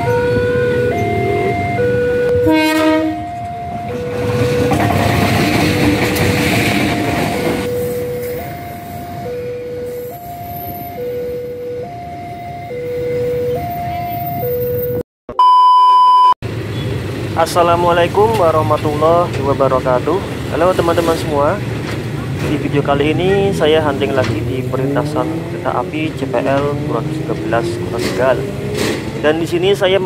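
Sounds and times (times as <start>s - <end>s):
train rumbling over crossing: 0.0s - 15.0s, 16.4s - 30.0s
level crossing two-tone alarm: 0.0s - 16.2s
train horn: 2.3s - 3.4s
steady test-tone beep: 7.7s - 16.4s.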